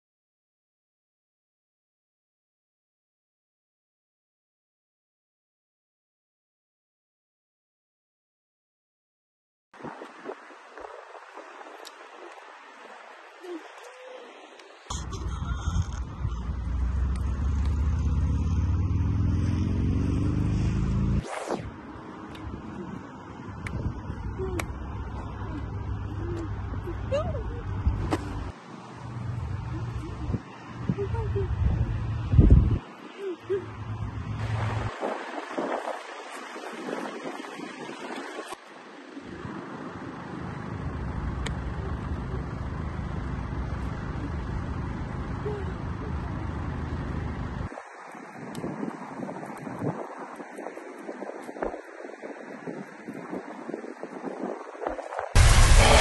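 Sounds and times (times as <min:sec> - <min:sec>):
car engine running: 0:14.9 - 0:19.9, 0:55.4 - 0:56.0
deep rumble rising in pitch: 0:14.9 - 0:21.4, 0:55.4 - 0:56.0
quick whoosh: 0:20.5 - 0:21.7.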